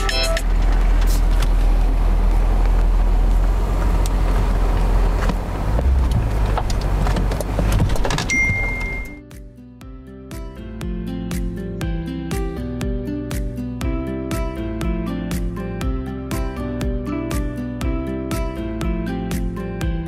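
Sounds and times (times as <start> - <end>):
car engine rumbling: 0.0 - 9.2
short high beep: 8.3 - 9.2.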